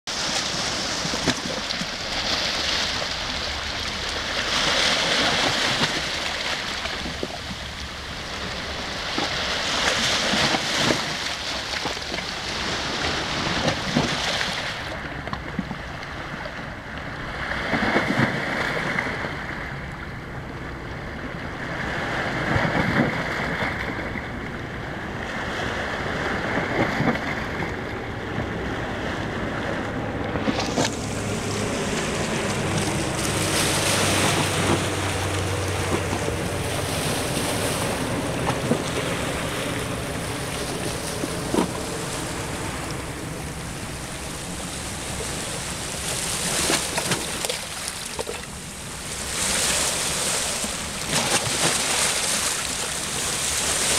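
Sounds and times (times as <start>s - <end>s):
small waves washing over pebbles: 0.1s - 16.5s, 30.4s - 53.9s.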